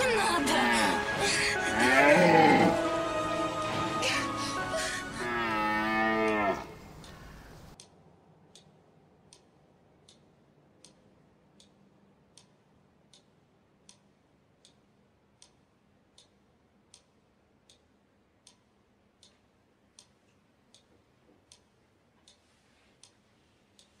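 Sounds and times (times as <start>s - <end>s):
music: 0.0s - 6.0s
faint ticking: 6.3s - 24.0s.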